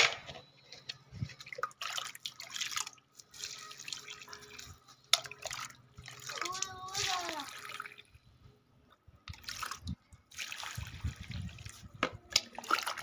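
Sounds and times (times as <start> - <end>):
mug scooping water from bucket: 1.2 - 8.1, 9.3 - 13.0
water poured onto soil: 1.8 - 8.0, 9.3 - 11.9.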